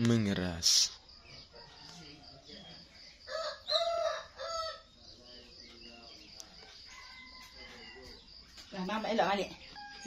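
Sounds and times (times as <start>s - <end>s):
rooster crowing: 3.3s - 4.9s, 6.6s - 8.2s, 9.7s - 10.0s.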